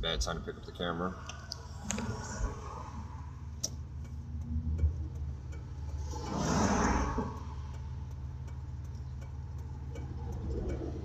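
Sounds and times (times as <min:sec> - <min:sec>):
car engine and road drone: 0:00.0 - 0:11.0
truck passing: 0:00.3 - 0:11.0.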